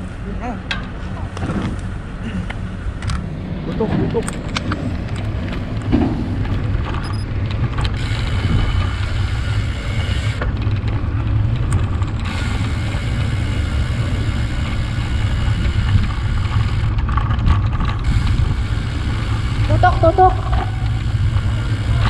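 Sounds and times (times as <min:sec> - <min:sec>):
bicycle road rumble: 0:00.0 - 0:22.0
wind buffeting microphone: 0:00.9 - 0:22.0.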